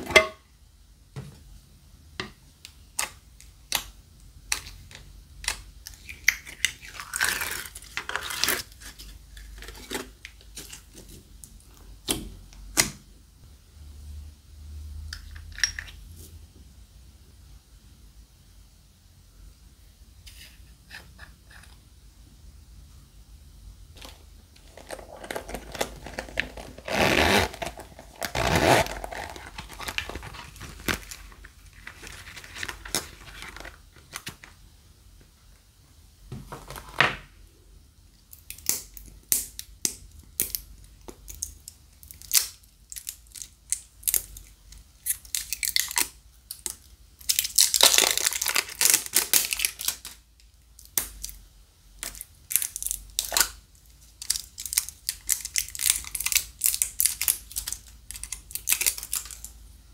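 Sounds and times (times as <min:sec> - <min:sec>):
plastic crinkling and rustling: 0:24.0 - 0:34.6, 0:45.0 - 0:50.2, 0:52.0 - 0:59.6.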